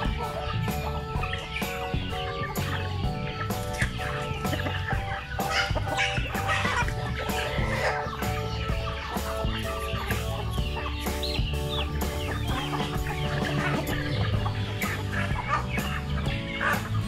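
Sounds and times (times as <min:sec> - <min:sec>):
background music with bass: 0:00.0 - 0:17.0
chickens clucking: 0:00.0 - 0:17.0.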